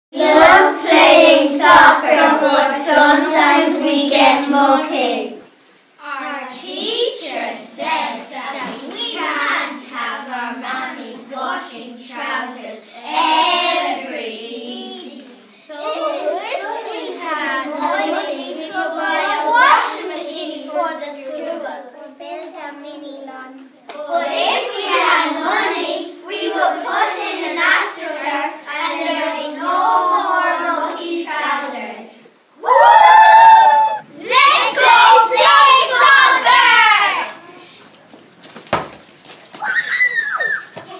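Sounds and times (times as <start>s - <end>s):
girls singing unaccompanied: 0.1s - 5.6s, 6.2s - 21.3s, 23.9s - 32.5s, 33.7s - 37.5s
children singing in chorus: 0.2s - 5.0s.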